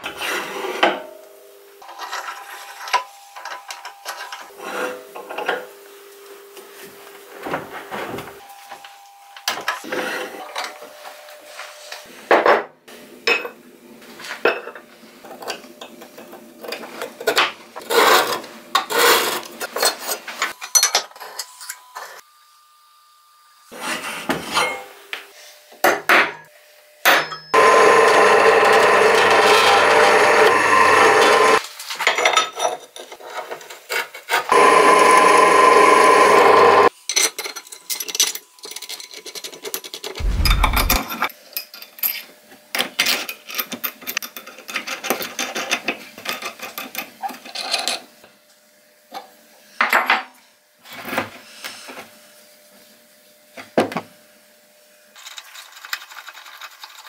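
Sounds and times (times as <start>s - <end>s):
power tool running: 27.6s - 31.6s, 34.5s - 36.9s, 40.2s - 41.1s.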